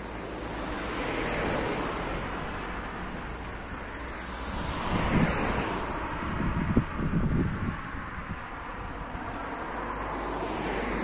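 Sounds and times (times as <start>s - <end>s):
car passing: 0.0s - 11.0s
wind buffeting microphone: 0.7s - 11.0s.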